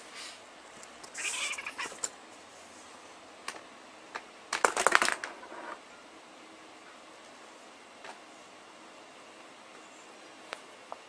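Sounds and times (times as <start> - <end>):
cat hissing: 1.1 - 2.0.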